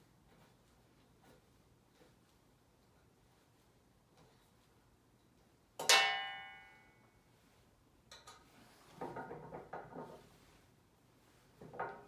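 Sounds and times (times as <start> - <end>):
metal clang on metal frame: 5.8 - 6.8.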